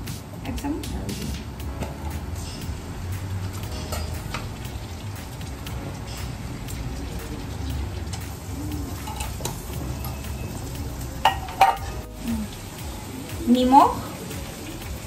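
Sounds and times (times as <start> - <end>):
onions sizzling in oil: 0.1 - 15.0.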